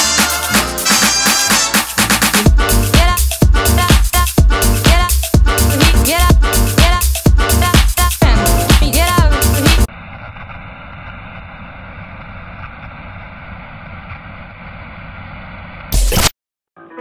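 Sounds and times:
electro swing music: 0.0s - 9.9s.

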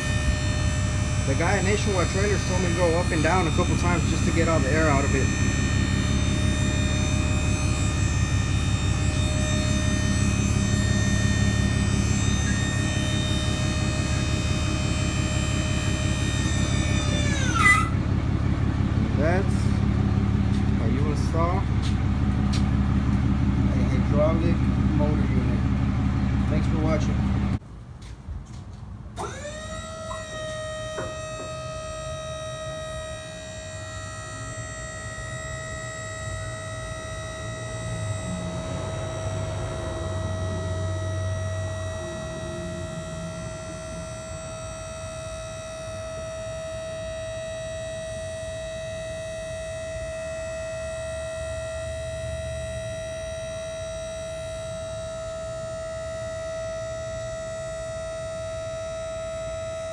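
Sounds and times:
electric motor whining: 0.0s - 18.0s, 29.2s - 44.9s.

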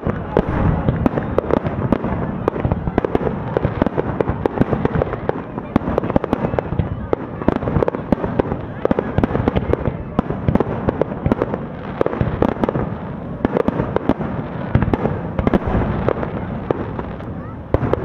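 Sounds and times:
continuous rumble: 0.1s - 3.0s, 15.4s - 18.0s
firework shells bursting: 0.2s - 2.1s, 15.4s - 18.0s.

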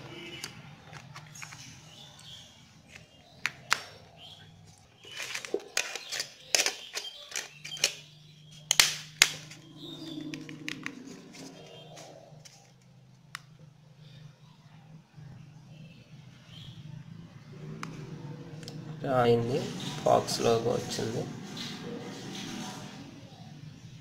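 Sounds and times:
plastic phone cover snapping on: 8.7s - 9.6s.

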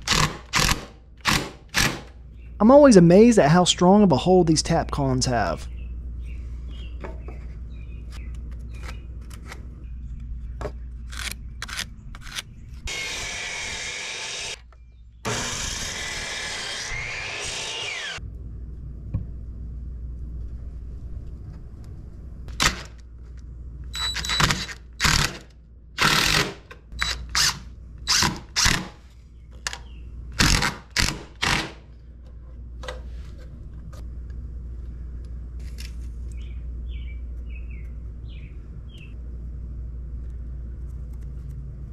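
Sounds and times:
power drill running: 12.9s - 14.6s, 15.3s - 18.2s.

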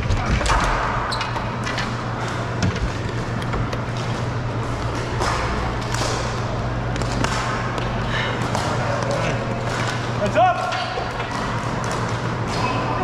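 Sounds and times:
low hum: 0.0s - 10.2s
gym noise: 0.0s - 13.0s.

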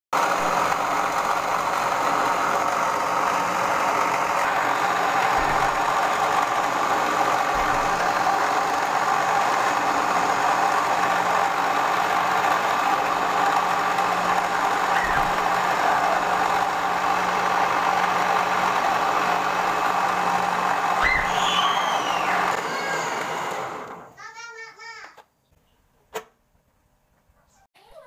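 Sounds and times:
stand mixer whipping egg whites: 0.2s - 24.1s.

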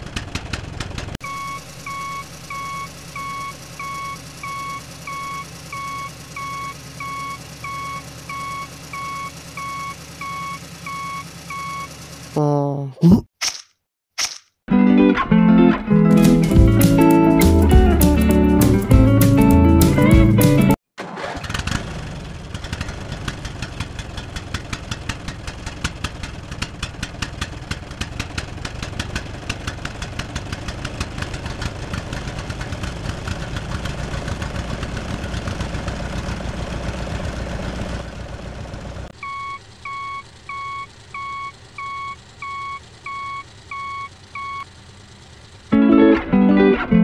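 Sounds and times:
tractor engine knocking: 0.0s - 12.3s, 22.5s - 45.7s
reversing beeper: 1.2s - 11.9s, 39.2s - 44.7s.

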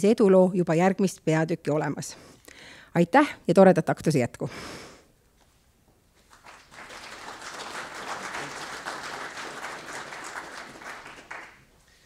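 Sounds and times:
audience applauding: 6.2s - 11.8s.

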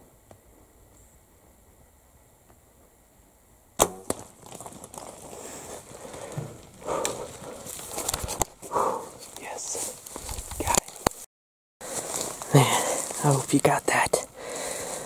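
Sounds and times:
bow string crack: 3.8s - 4.6s
animal running through brush: 3.8s - 15.0s.

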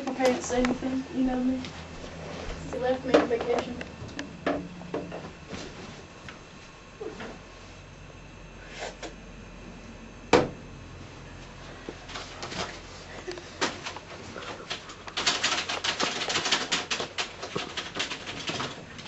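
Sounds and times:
rapid clatter of clicks and taps: 12.1s - 19.0s.

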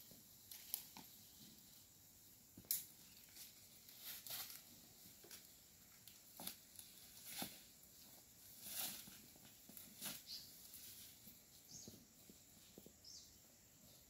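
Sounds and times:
rustles and snaps in undergrowth: 0.4s - 1.7s, 2.6s - 12.0s.

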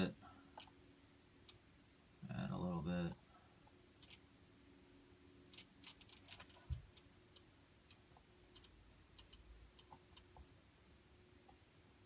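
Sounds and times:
soldering clicks and crackles: 5.5s - 10.5s.

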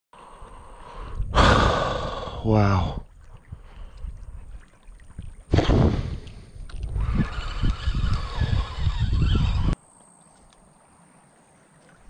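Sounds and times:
microphone handling rush: 5.5s - 9.8s.

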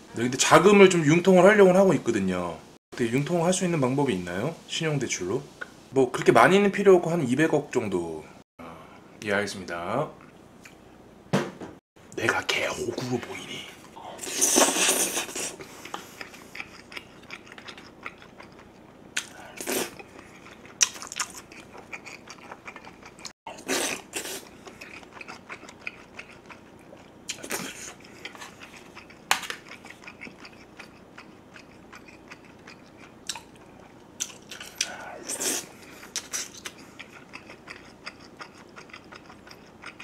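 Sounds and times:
person chewing food: 13.8s - 40.0s.

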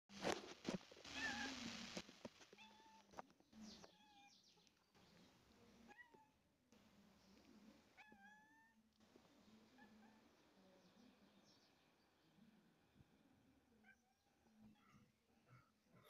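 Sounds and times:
cats meowing faintly: 1.1s - 4.4s.

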